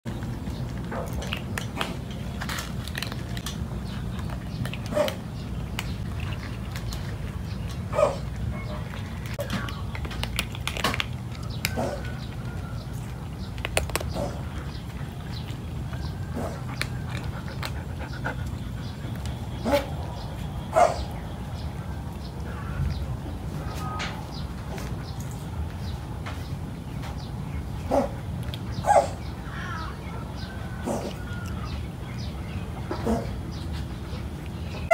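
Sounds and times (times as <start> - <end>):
cats crunching hard food: 0.1 - 20.6.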